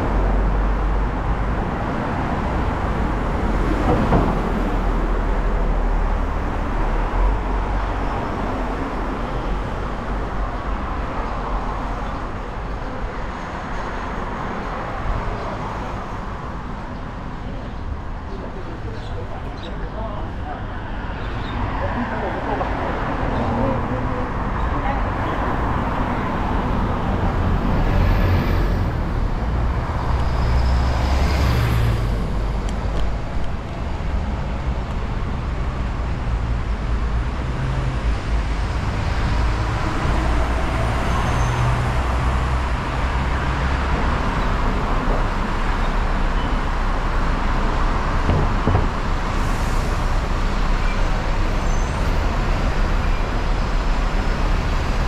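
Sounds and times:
road traffic rumble: 0.0 - 55.0.

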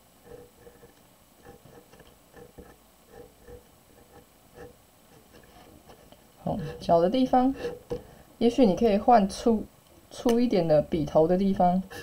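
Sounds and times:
marker pen scratching on paper: 0.2 - 7.0.

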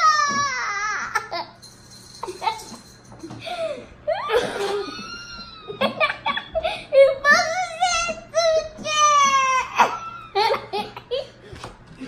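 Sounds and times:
children laughing: 3.6 - 7.8, 9.1 - 11.5.

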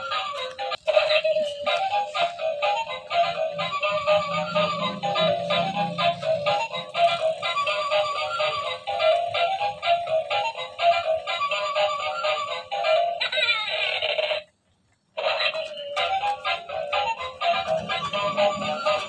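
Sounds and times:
synthetic singing voice: 0.0 - 9.2
repeating electronic tune: 3.2 - 7.4.

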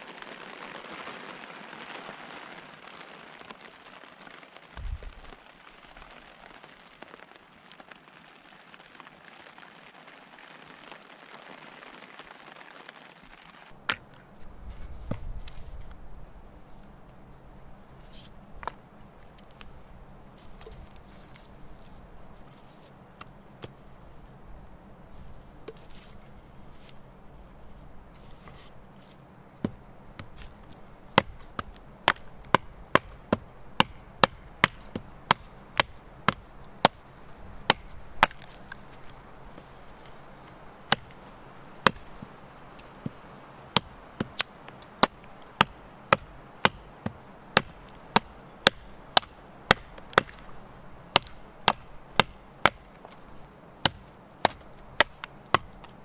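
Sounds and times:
wood being chopped: 29.6 - 39.2, 40.8 - 41.2, 41.8 - 53.2, 53.8 - 56.0.

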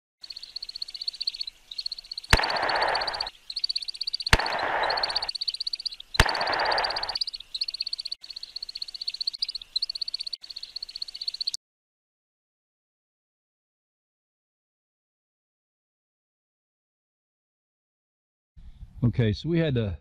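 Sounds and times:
high rapid animal trill: 0.3 - 11.6
sharp clicks: 1.2 - 8.2
loud hiss: 2.3 - 3.3, 4.3 - 5.3, 6.2 - 7.2.

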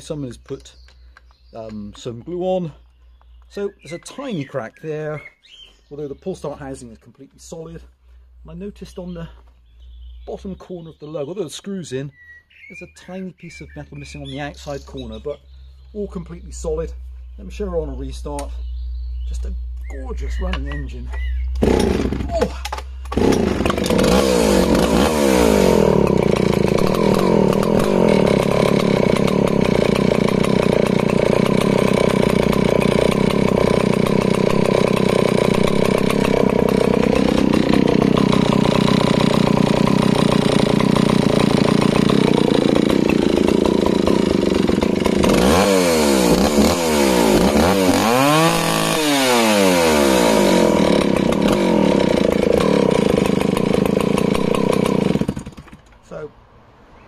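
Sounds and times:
chainsaw idling and revving: 19.3 - 56.3.

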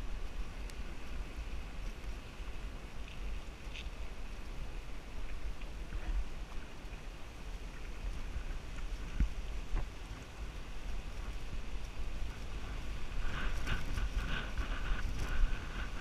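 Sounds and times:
wind buffeting microphone: 0.0 - 16.0.

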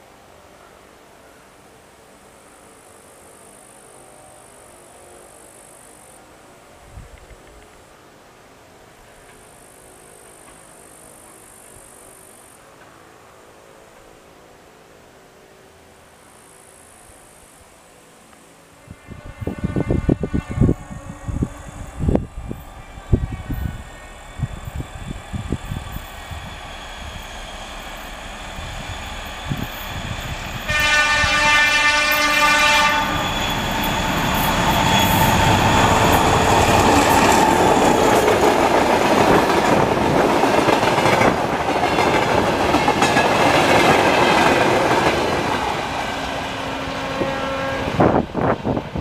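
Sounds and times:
diesel locomotive engine: 0.0 - 49.0
locomotive horn: 18.8 - 24.5, 30.5 - 38.1, 46.5 - 48.5.

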